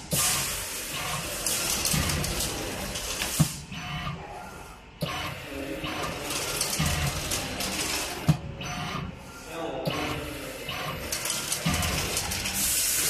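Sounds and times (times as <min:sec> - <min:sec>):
machine ratcheting clatter: 0:00.9 - 0:03.4, 0:06.0 - 0:08.3, 0:10.7 - 0:12.7.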